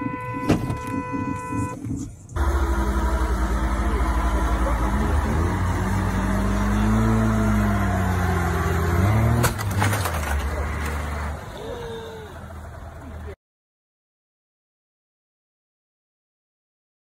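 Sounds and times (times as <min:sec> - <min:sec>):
diesel truck engine under load: 0:00.0 - 0:13.4.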